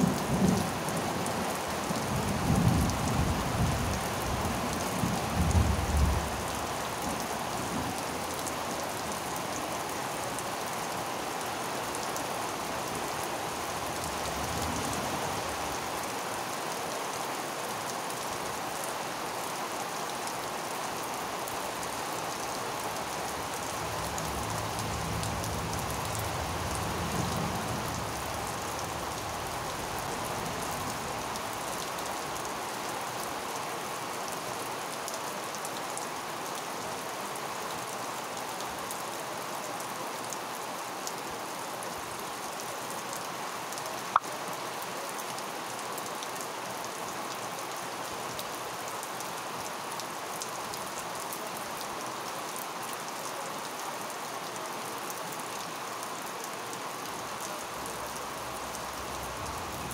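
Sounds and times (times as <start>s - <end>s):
rain on leafy plants: 0.0s - 59.9s.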